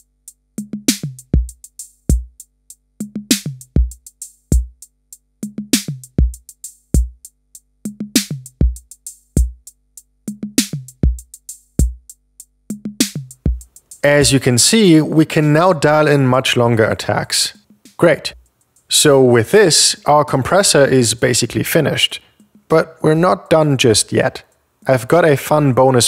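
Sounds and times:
drum machine beat: 0:00.0 - 0:15.8, 0:17.5 - 0:19.2, 0:22.3 - 0:23.2.

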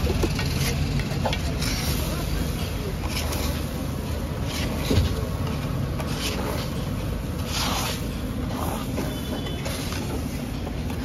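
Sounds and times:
metal spatula scraping: 0:01.4 - 0:10.5.

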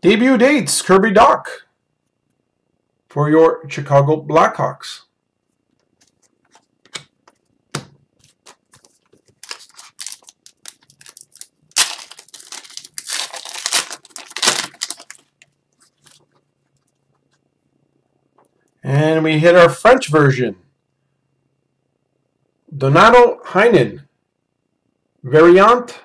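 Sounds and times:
card wrapper crinkling and tearing: 0:08.2 - 0:16.3.

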